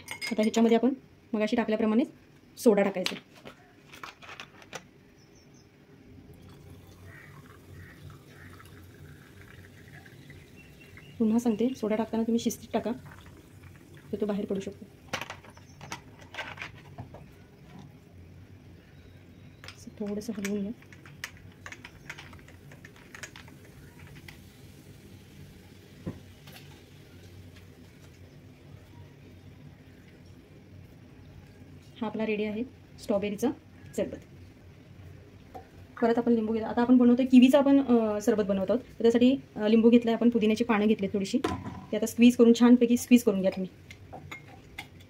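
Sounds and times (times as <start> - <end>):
soda water pouring and fizzing: 6.3 - 15.8, 20.8 - 28.2.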